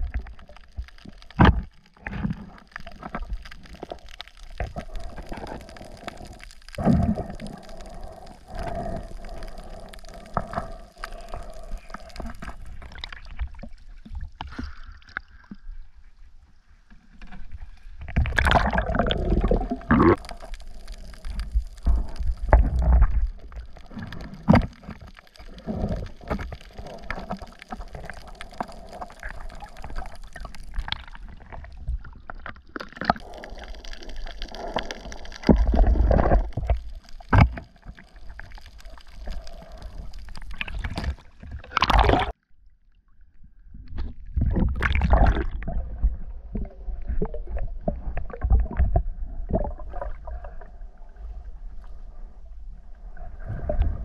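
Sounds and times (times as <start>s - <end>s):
water gurgling underwater: 0.0s - 15.7s, 18.0s - 42.4s, 43.7s - 54.0s.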